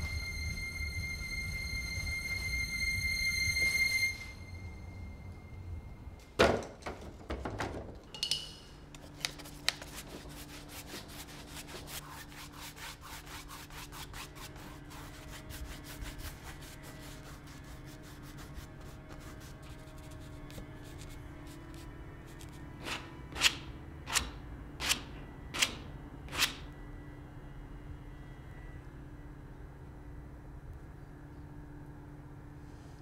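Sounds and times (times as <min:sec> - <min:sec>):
low steady hum: 0:00.0 - 0:07.2, 0:08.0 - 0:33.0
paintbrush scrubbing on canvas: 0:09.6 - 0:22.5.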